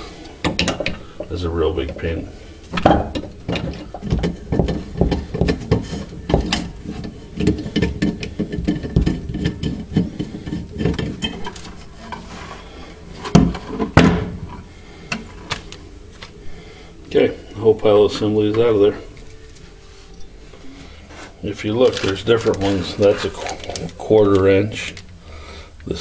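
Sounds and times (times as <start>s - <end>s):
metal parts knocking: 2.8s - 11.8s.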